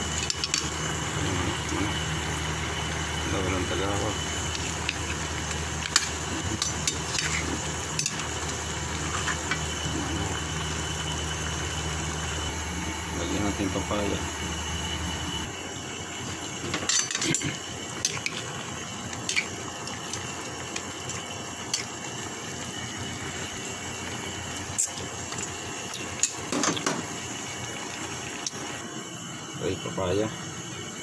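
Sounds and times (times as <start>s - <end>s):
chicken sizzling in a pan: 0.0s - 12.5s.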